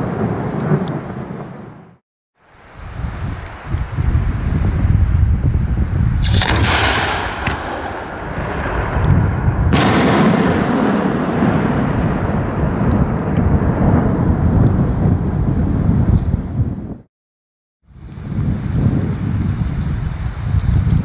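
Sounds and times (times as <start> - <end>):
wind rumble on microphone: 0.0 - 17.1, 17.9 - 21.0
firework burst bang: 6.2 - 12.5
firework shell launch report: 6.2 - 13.9.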